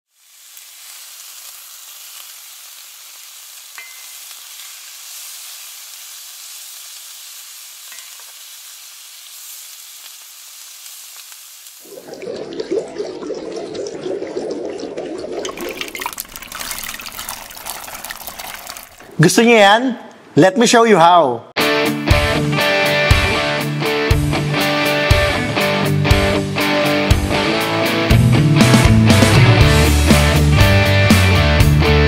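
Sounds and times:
meat sizzling on a hot plate: 0.1s - 11.9s
louder deeper sizzle: 0.1s - 19.2s
broth pouring into a bowl: 11.8s - 19.2s.

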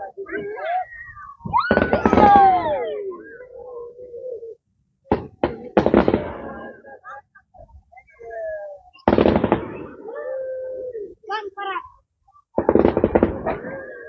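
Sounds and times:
long held calls: 0.0s - 4.8s
fireworks bangs: 1.5s - 2.6s, 5.1s - 6.7s, 9.0s - 10.0s, 12.6s - 14.0s.

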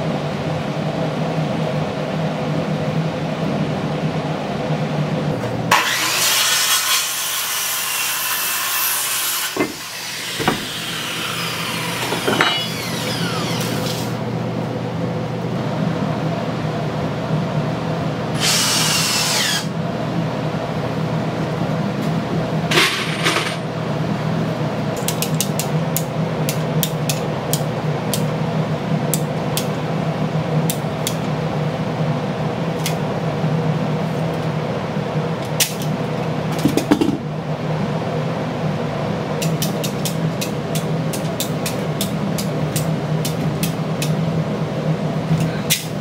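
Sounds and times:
steady low hum: 19.7s - 46.0s.

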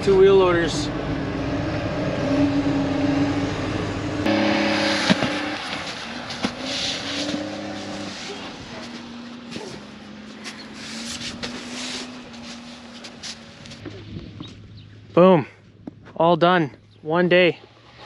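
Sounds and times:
loader engine running: 0.0s - 16.0s
sharp knocks: 4.3s - 6.6s.

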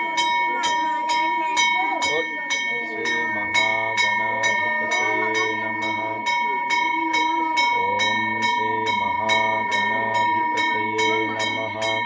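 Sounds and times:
person chanting: 0.0s - 12.0s
temple bell ringing: 0.0s - 12.0s.

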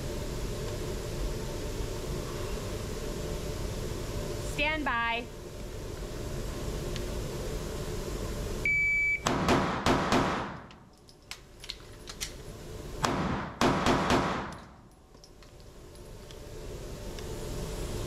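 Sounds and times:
shot timer beep: 8.6s - 9.3s
pistol shots echoing: 9.3s - 10.7s, 13.0s - 14.6s.

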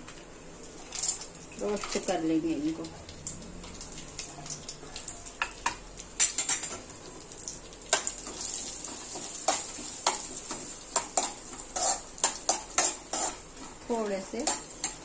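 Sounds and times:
nuts sizzling in ghee: 0.1s - 15.0s
spoon scraping and clinking pan: 10.9s - 13.4s.

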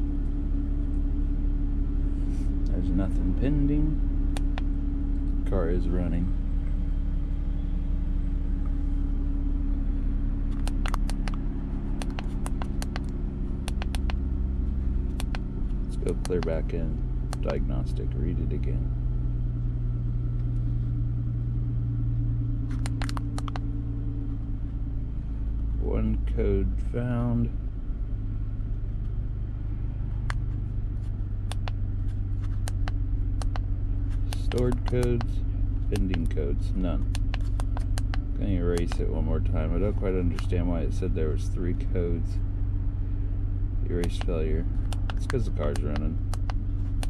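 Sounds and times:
car engine idling: 0.0s - 47.0s
sharp button clicks: 10.5s - 11.4s, 22.7s - 23.6s, 34.3s - 35.3s.

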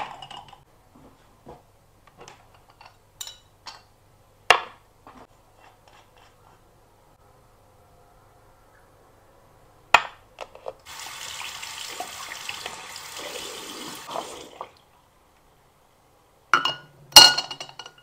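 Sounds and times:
sink tap running: 10.9s - 14.4s.

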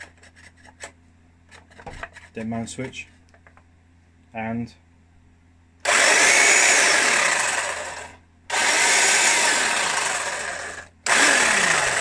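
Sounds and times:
electric hedge trimmer running: 5.8s - 12.0s.

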